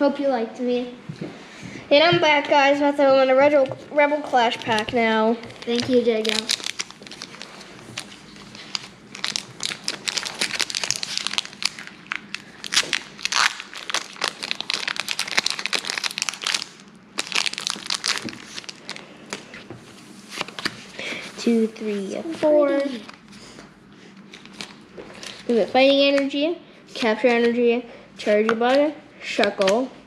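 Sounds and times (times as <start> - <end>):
foil wrapper crinkling: 4.3 - 19.5, 24.3 - 25.8.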